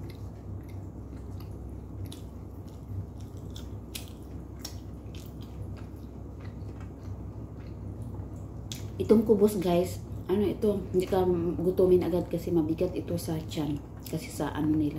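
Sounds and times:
chewing soft bread: 0.0s - 10.4s
low hum: 0.0s - 14.9s.

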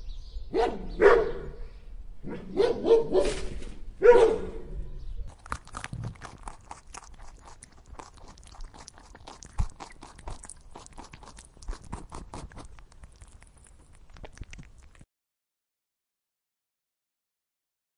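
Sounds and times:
tortoises crunching greens: 5.2s - 15.0s.

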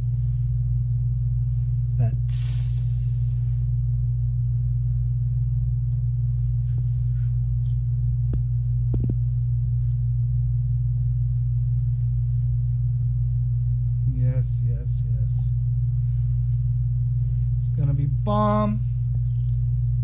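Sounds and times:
low hum: 0.0s - 20.0s
faint hiss: 2.3s - 3.3s.

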